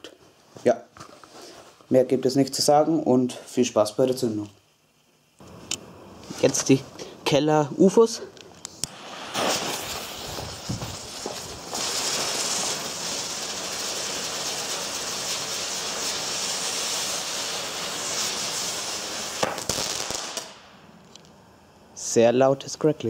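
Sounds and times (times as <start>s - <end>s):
fuse burning: 0.0s - 23.0s
firework hissing: 5.4s - 21.0s
firework crackling: 7.7s - 21.2s.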